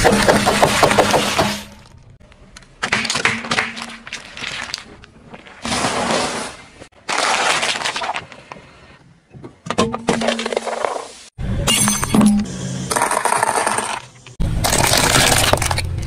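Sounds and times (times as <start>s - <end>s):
tyre crushing plastic packaging: 7.0s - 8.4s.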